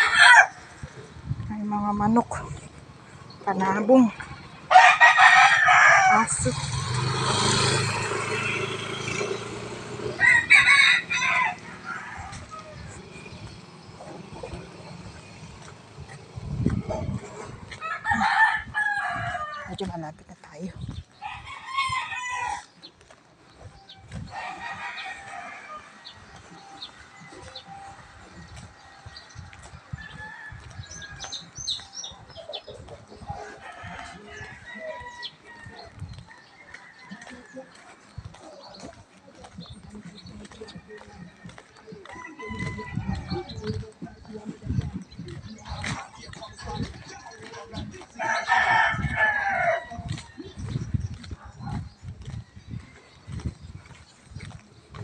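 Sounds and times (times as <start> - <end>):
rooster crowing: 0.0 - 0.6, 4.7 - 6.3, 10.1 - 12.9, 48.2 - 50.2
chickens crowing and clucking: 0.0 - 1.2, 3.5 - 20.0, 21.2 - 22.9, 23.7 - 39.0, 40.5 - 54.6
walking footsteps thumping: 11.6 - 55.0.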